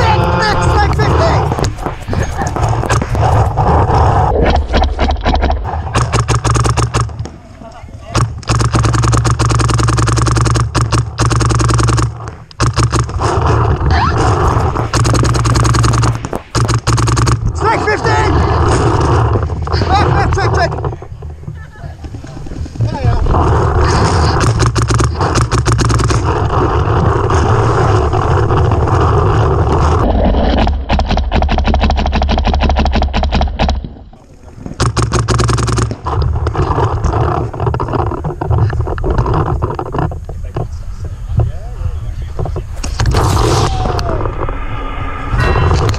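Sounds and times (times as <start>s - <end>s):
paintball markers firing rapidly: 0.0s - 3.8s, 4.4s - 7.3s, 8.1s - 21.0s, 23.3s - 33.9s, 34.8s - 40.1s
wind rumbling on microphone: 0.0s - 9.0s, 10.2s - 45.9s.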